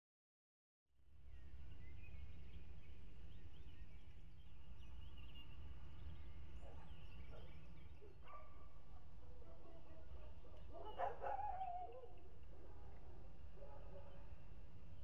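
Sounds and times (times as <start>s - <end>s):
animal call: 10.6s - 12.3s.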